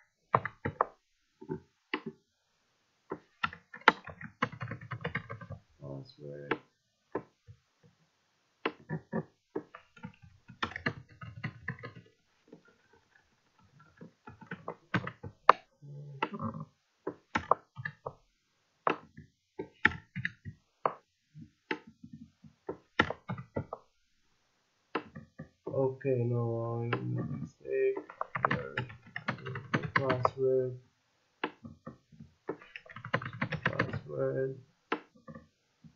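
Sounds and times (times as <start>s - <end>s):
keyboard keystrokes: 28.0s - 30.4s, 32.5s - 34.1s.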